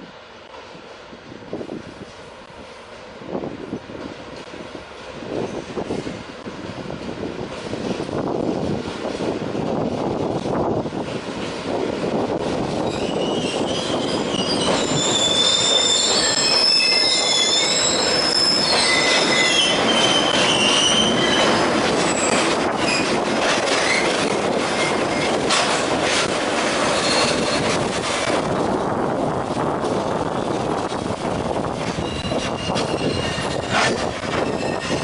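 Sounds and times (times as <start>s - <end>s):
rumble of train wagons: 0.0s - 35.0s
train clanks and knocks: 1.6s - 35.0s
train wheels squealing: 12.8s - 24.2s, 26.9s - 27.8s, 31.9s - 35.0s.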